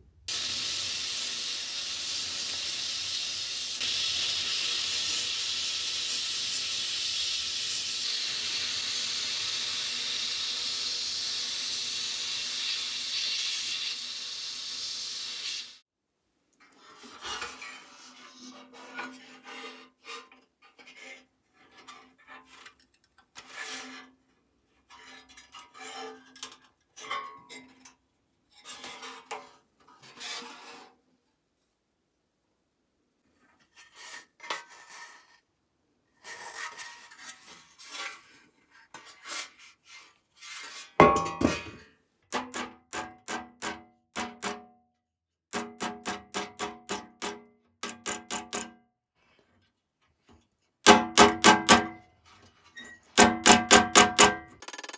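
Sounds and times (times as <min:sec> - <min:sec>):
sheet steel parts clinking: 0:41.0 - 0:41.9.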